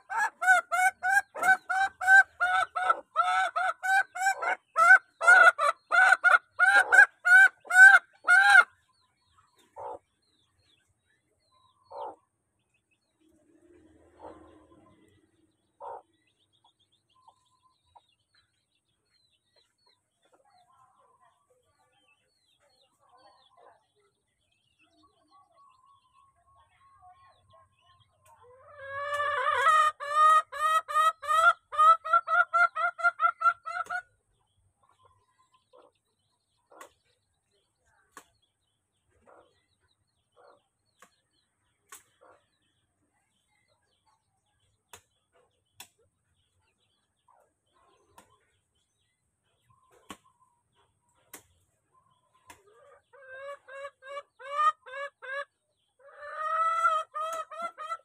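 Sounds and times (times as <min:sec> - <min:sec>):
chicken clucking: 0:00.0 - 0:58.0
faint chirps and ticks: 0:08.7 - 0:29.3.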